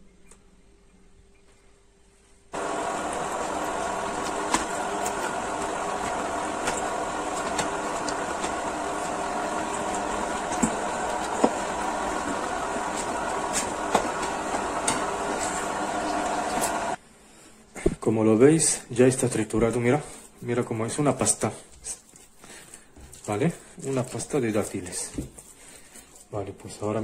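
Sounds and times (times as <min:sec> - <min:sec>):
electric meat grinder motor humming: 0:02.6 - 0:17.0.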